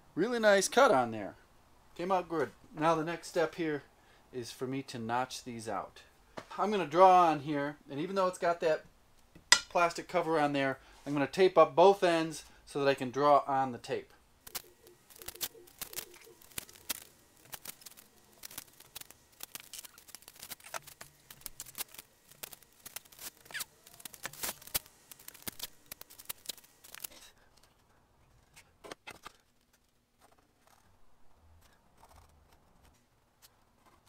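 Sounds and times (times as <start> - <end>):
tape pulled off roll crackling: 14.4 - 27.8.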